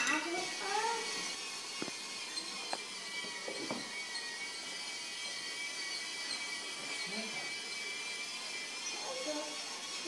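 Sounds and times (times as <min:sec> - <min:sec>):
toy train motor whining: 0:00.0 - 0:10.0.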